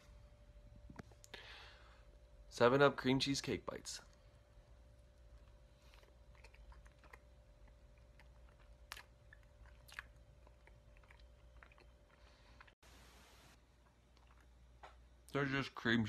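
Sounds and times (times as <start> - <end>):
faint steady hum: 0.0 - 16.0
chewing with wet mouth clicks: 5.2 - 12.8, 13.8 - 15.0.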